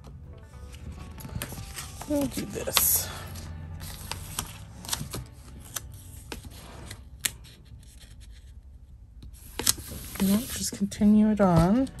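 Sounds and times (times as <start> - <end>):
paper rustling: 0.7 - 8.6, 9.3 - 10.9.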